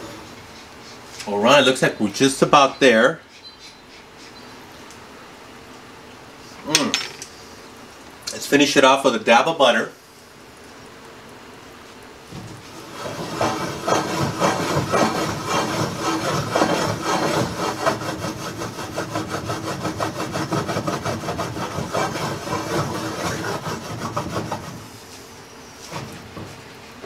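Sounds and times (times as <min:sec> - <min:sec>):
skillet scraping on stove grate: 0:12.5 - 0:26.6.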